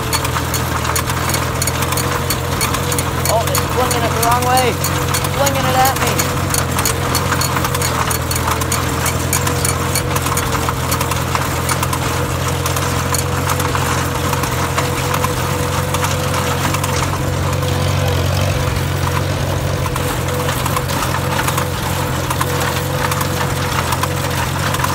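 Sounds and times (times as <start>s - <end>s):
manure spreader clattering: 0.0s - 24.9s
tractor engine running: 0.0s - 24.9s
thin steady whine: 1.3s - 7.6s.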